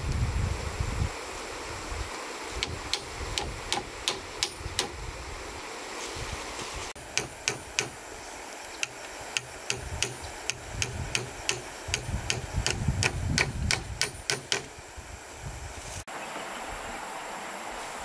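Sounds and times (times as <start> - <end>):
hand tool sharp knocks: 7.2 - 8.0, 8.8 - 14.7.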